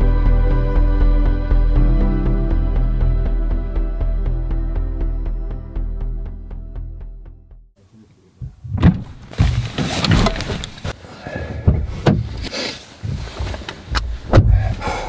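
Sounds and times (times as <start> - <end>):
handling noise: 8.4 - 11.0
car doors clunking: 8.4 - 15.0.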